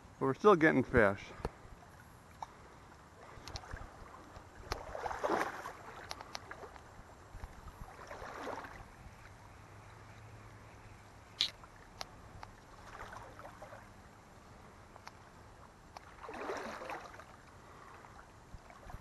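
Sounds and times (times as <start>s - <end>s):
water swishing around legs: 1.6s - 19.0s
light clicks: 3.4s - 3.7s.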